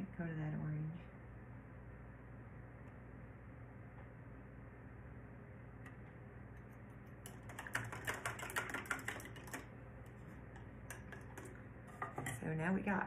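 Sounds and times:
low steady hum: 0.0s - 13.0s
paintbrush clicking and tapping: 7.2s - 9.7s.

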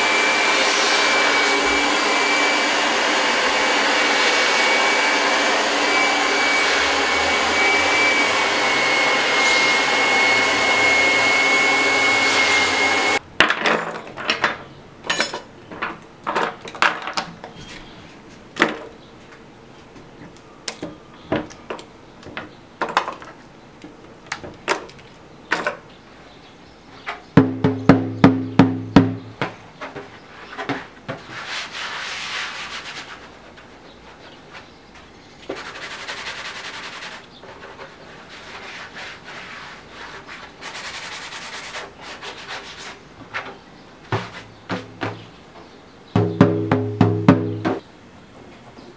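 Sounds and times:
hair dryer blowing with whistle: 0.0s - 13.2s
loud knocks with ringing tone: 27.4s - 29.5s, 46.2s - 47.8s.

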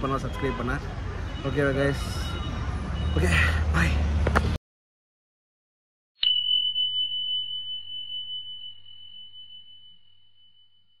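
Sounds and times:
high bell-like ding: 6.2s - 11.0s.

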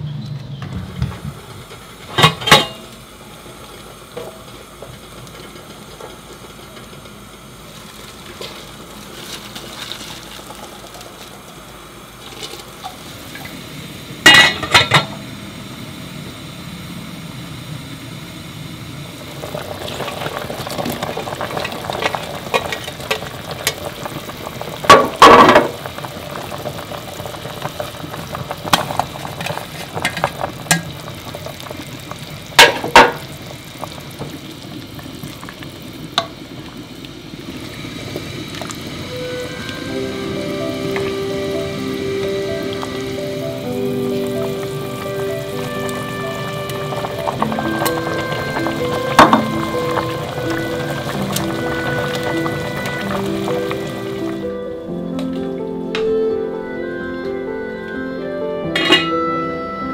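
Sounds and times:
metal pot and lid clanking: 2.1s - 2.9s, 14.3s - 15.2s, 21.6s - 23.9s, 24.9s - 25.9s, 28.7s - 31.0s, 32.6s - 33.3s, 45.6s - 53.9s, 58.7s - 59.3s
broth bubbling at a boil: 15.7s - 54.5s.

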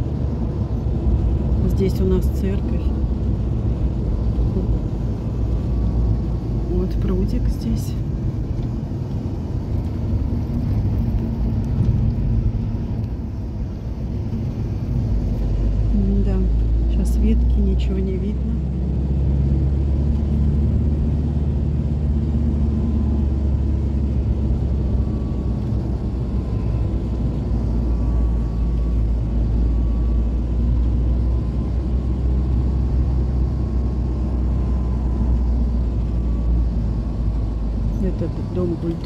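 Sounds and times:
vehicle engine rumble: 0.0s - 39.0s.

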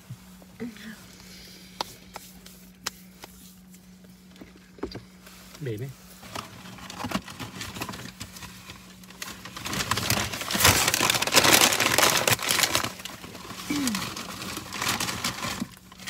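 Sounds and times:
paper packaging crinkling: 6.2s - 16.0s.

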